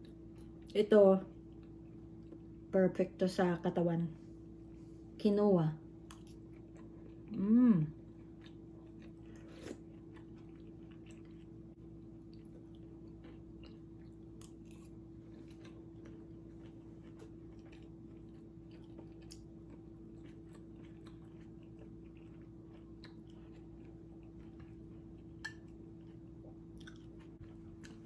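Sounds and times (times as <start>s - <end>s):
steady low hum: 0.0s - 28.0s
person chewing: 6.0s - 28.0s.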